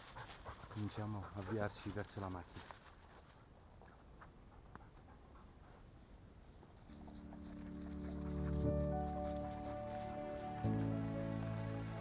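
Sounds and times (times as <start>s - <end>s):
music: 6.9s - 12.0s.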